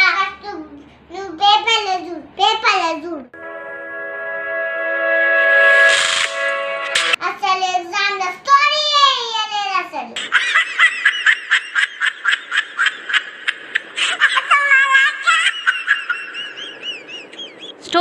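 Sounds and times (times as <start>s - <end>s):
girl's high-pitched voice: 0.0s - 3.4s, 7.2s - 10.2s, 14.3s - 15.6s.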